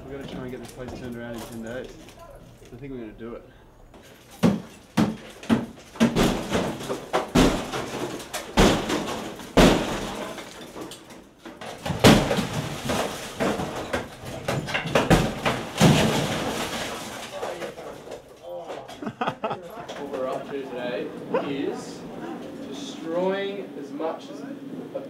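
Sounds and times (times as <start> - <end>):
demolition debris crashing: 0.0 - 2.7, 3.9 - 20.6
rubble rattling: 3.9 - 19.1.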